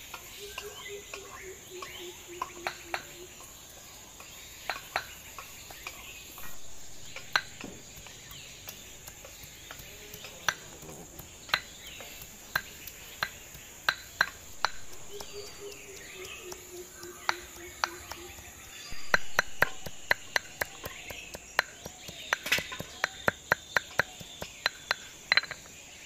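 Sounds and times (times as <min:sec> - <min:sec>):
insect drone: 0:00.0 - 0:26.0
knife chopping on board: 0:06.4 - 0:25.0.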